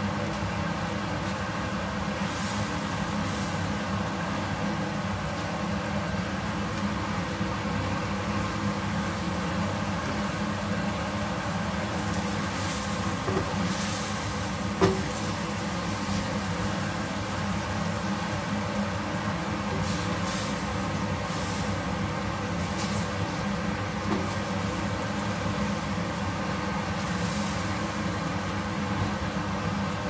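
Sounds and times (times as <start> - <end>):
paste sizzling in oil: 2.1 - 5.0, 7.9 - 19.0, 19.6 - 28.7.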